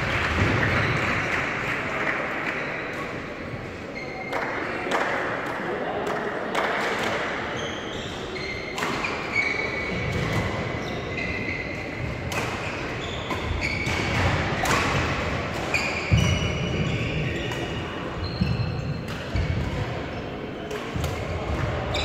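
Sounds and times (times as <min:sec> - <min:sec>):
rackets hitting shuttlecocks: 0:04.2 - 0:07.5, 0:08.6 - 0:10.9, 0:11.7 - 0:21.9
shoes squeaking on court: 0:07.5 - 0:14.3, 0:15.6 - 0:19.5.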